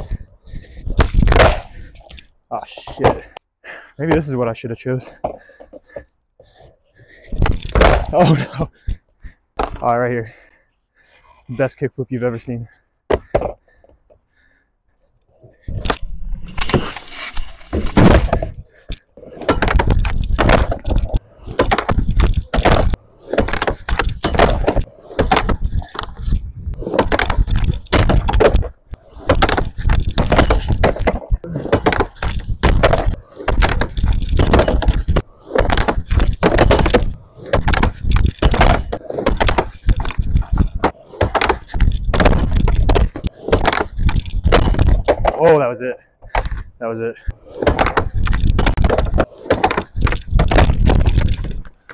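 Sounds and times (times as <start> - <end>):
skateboard slapping on wood: 0.0 - 2.2, 7.4 - 8.4, 17.8 - 45.5, 47.3 - 51.9
skateboard wheels rolling: 0.0 - 3.4, 18.0 - 45.4, 47.3 - 51.9.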